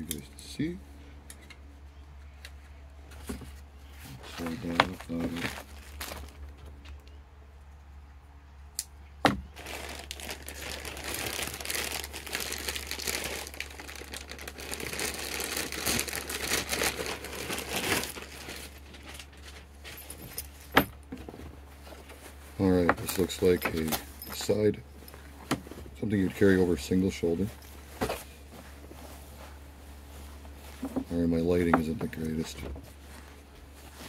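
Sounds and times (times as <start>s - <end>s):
plastic packaging crinkling: 4.2s - 7.0s, 9.5s - 20.8s.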